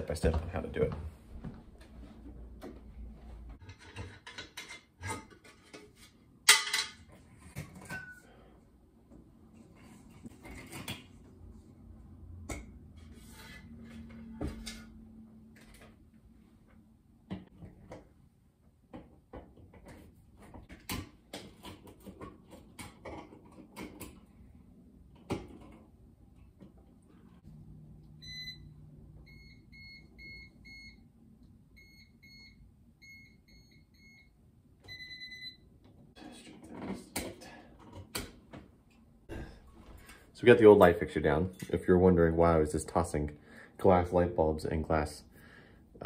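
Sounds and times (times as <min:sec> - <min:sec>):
electrical tester beeping: 0:28.2 - 0:31.0.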